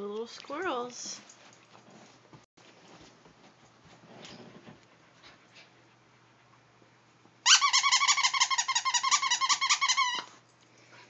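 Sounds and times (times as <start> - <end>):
toy squeaker warbling squeak: 7.5 - 10.3.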